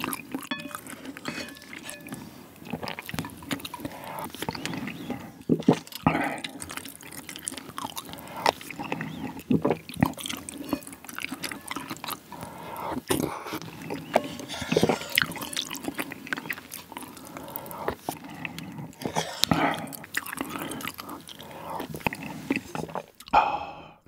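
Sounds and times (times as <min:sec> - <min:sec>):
spoon scooping broth: 0:00.0 - 0:07.3
chewing: 0:00.0 - 0:23.6
slurping noodles: 0:00.0 - 0:23.8.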